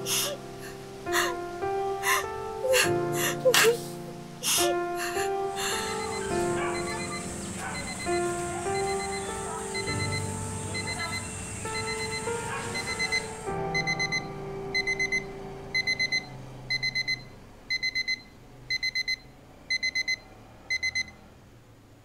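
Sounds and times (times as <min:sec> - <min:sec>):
alarm clock beeping: 0:05.8 - 0:21.2.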